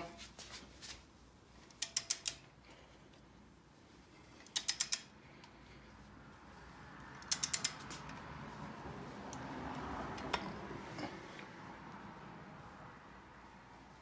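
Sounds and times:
torque wrench ratchet clicking: 1.7s - 2.5s, 4.4s - 5.1s, 7.1s - 8.1s.

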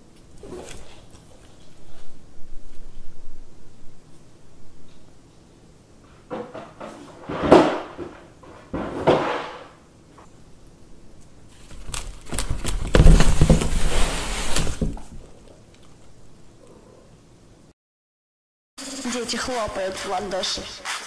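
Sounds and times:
cardboard scraping and rustling: 11.5s - 15.3s.

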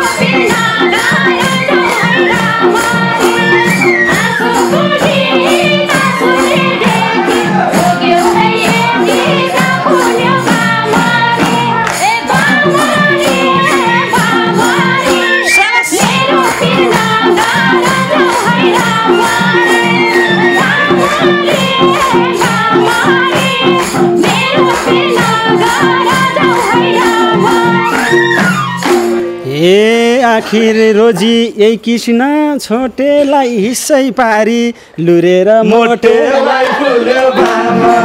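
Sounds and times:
flute melody: 0.0s - 8.2s, 14.6s - 22.2s, 26.4s - 29.5s
hand drums fast beat: 0.0s - 31.4s, 37.3s - 38.0s.

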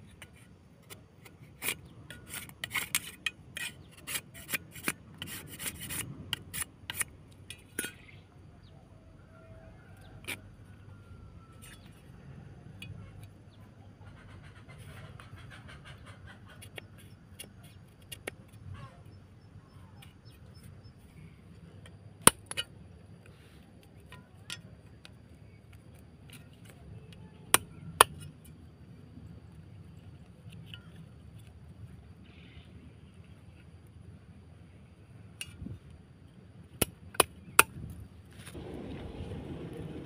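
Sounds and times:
knife cutting bamboo on wood: 0.1s - 7.9s.

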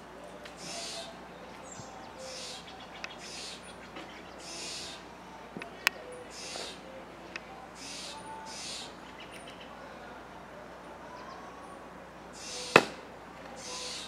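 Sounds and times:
jays giving harsh calls: 0.6s - 1.2s, 2.0s - 5.1s, 6.2s - 6.8s, 7.8s - 9.7s, 12.3s - 13.0s, 13.6s - 14.0s
axe striking firewood: 12.8s - 13.0s.

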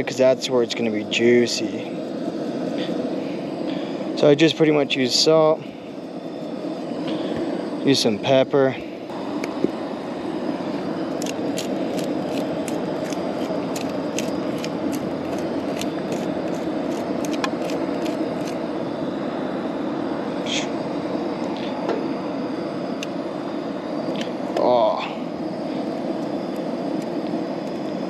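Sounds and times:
low rushing background: 0.2s - 28.0s
pepper grinder clicking: 11.2s - 18.6s.

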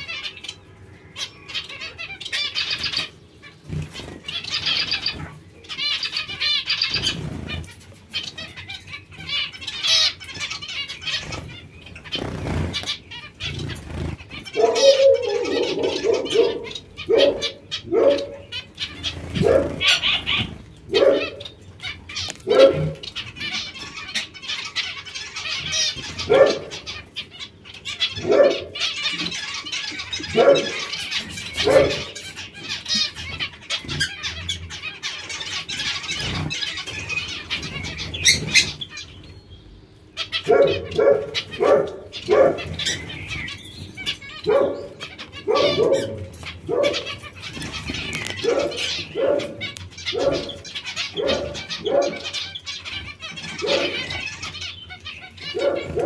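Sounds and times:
high twittering of many birds: 0.0s - 56.0s
short pitched finch calls: 0.0s - 56.0s.

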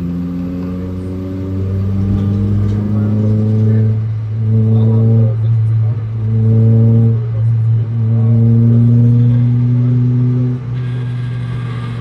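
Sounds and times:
race car engine from cabin: 0.0s - 12.0s.

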